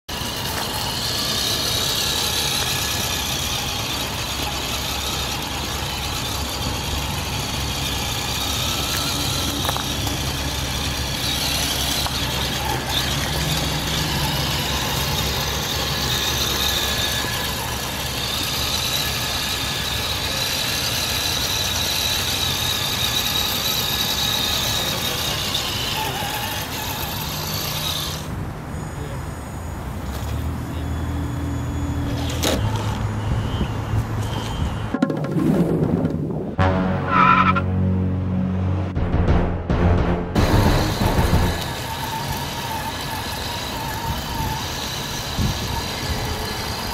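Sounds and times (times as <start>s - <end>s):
electric motor whine: 0.1s - 28.4s, 40.4s - 46.9s.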